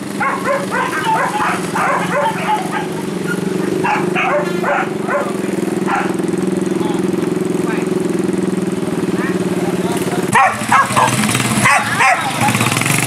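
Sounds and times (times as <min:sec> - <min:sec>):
dogs barking and yipping: 0:00.0 - 0:06.4, 0:10.2 - 0:12.8
motorcycle engine idling: 0:00.0 - 0:13.0.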